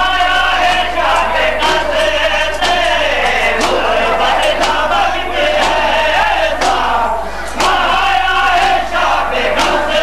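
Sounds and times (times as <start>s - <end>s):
crowd of men chanting in unison: 0.0s - 10.0s
hands slapping chests: 2.6s - 5.0s, 5.6s - 5.9s, 6.6s - 6.9s, 7.5s - 7.9s, 9.6s - 9.9s.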